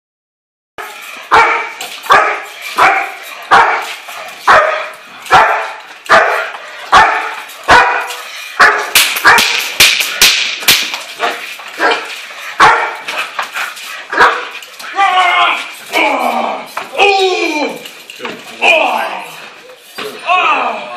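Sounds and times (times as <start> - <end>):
dog barking: 0.8 - 9.6, 11.2 - 13.1, 14.1 - 14.5.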